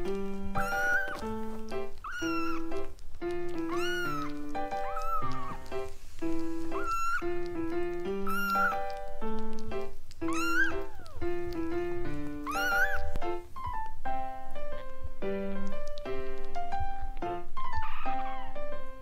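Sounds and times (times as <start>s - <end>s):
gentle piano music: 0.0s - 19.0s
kittens mewing: 0.5s - 5.9s, 6.6s - 11.6s, 12.2s - 13.9s.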